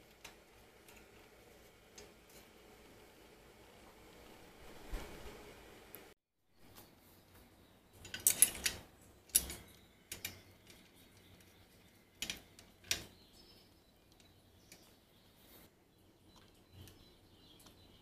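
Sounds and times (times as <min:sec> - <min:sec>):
metal parts clicking: 0:08.0 - 0:11.5, 0:12.2 - 0:13.1.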